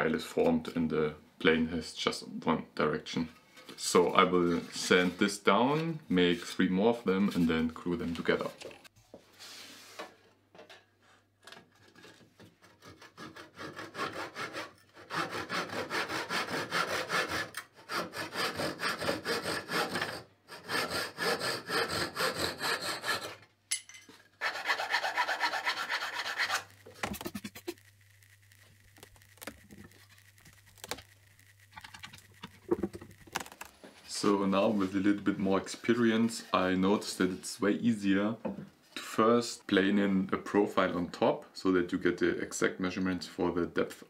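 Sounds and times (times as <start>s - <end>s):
hand saw cutting wood: 12.4s - 23.4s, 24.4s - 27.6s.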